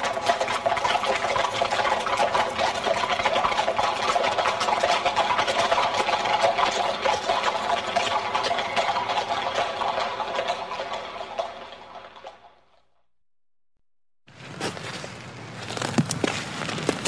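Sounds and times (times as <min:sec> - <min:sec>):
cart rattling: 0:00.0 - 0:12.8
horse hooves clattering: 0:00.0 - 0:13.0, 0:14.3 - 0:17.0.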